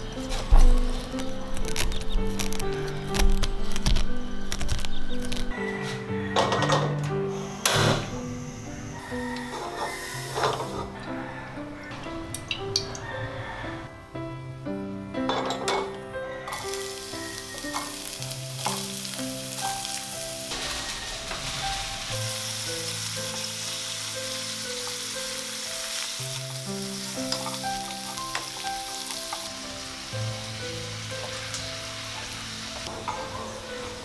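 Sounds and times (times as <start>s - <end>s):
soft instrumental music: 0.0s - 34.0s
food sizzling in frying pan: 8.6s - 10.9s, 16.5s - 34.0s.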